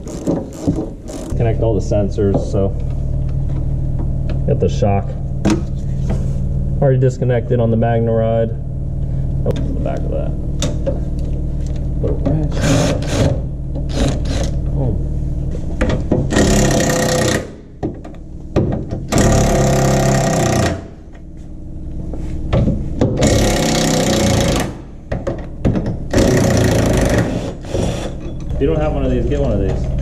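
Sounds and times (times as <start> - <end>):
impact wrench hammering: 12.5 - 14.6, 15.8 - 21.0, 22.5 - 28.4.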